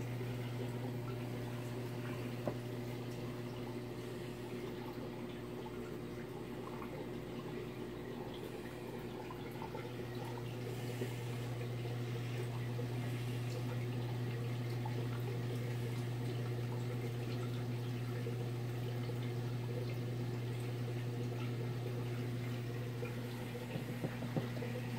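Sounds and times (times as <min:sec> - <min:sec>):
aquarium pump humming: 0:00.0 - 0:24.9
water trickling and bubbling: 0:00.0 - 0:24.9.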